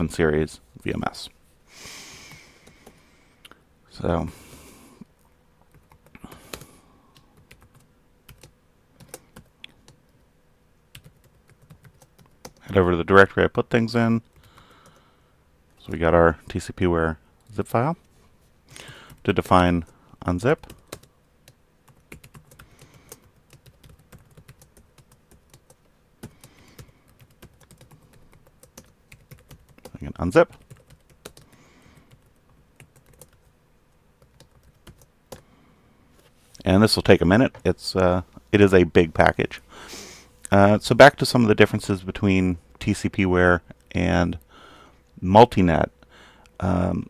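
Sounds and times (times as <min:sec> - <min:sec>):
computer keyboard typing: 0:05.7 - 0:10.0, 0:10.9 - 0:12.7, 0:20.6 - 0:33.5, 0:34.2 - 0:35.4.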